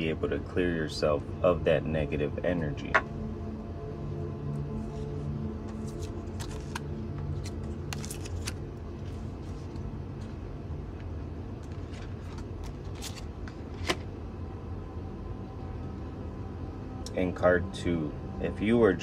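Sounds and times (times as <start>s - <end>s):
low hum: 0.0s - 19.0s
cards being handled: 4.8s - 10.3s, 11.6s - 14.1s.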